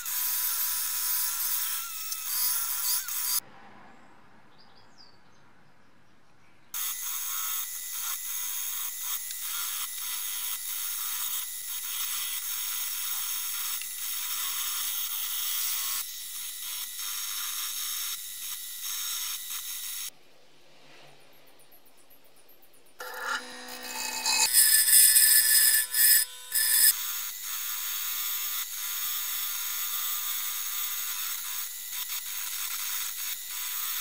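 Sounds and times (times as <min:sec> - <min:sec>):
wire wheel brush scrubbing steel: 0:23.0 - 0:26.9.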